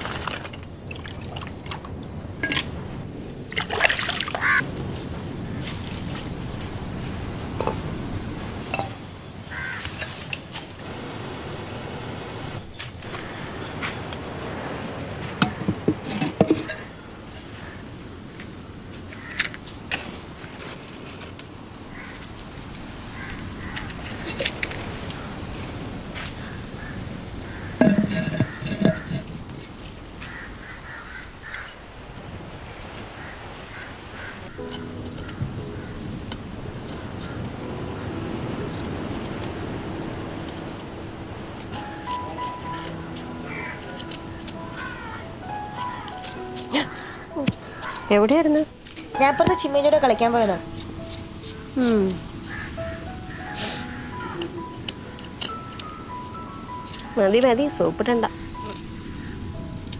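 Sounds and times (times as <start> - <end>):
steady background hiss: 0.0 - 59.9
clay pots knocking and clinking: 15.4 - 17.0, 27.7 - 29.4.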